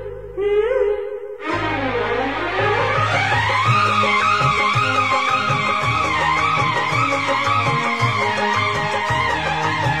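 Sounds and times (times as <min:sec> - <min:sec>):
instrumental background music: 0:01.4 - 0:10.0.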